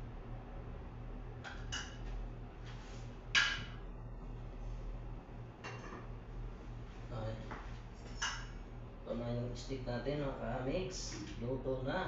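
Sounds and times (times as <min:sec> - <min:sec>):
low hum: 0:00.0 - 0:12.0
dishes and utensils clinking: 0:05.6 - 0:06.1, 0:08.1 - 0:08.6.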